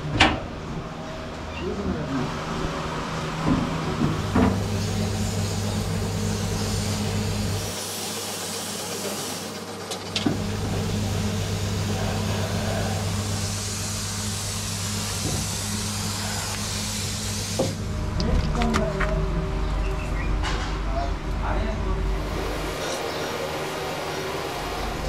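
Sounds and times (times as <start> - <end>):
motor hum: 0.0 - 7.8, 9.6 - 20.5, 21.2 - 25.0
air hissing: 4.5 - 9.6, 10.4 - 17.9.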